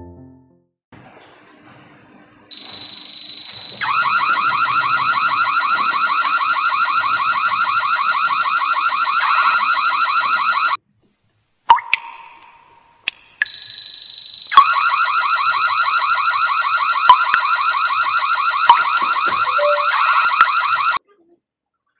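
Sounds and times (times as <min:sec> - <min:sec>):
electronic siren high tone: 0:02.5 - 0:10.8, 0:13.5 - 0:21.0
fast rising electronic chirps: 0:18.4 - 0:21.0.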